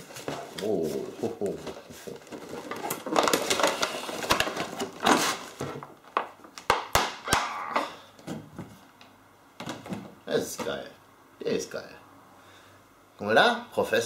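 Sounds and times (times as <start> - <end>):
packaging rustling and crinkling: 0.0 - 6.8.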